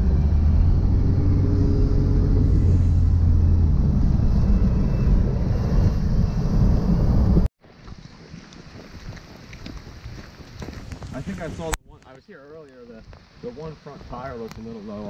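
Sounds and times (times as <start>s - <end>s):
car engine and road rumble: 0.0s - 7.5s.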